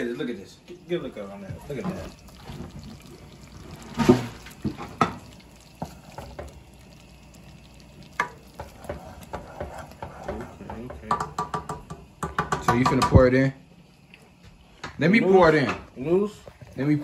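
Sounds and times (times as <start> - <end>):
spoon stirring thick sauce: 1.4 - 12.7
spoon knocking metal pot: 8.2 - 13.3.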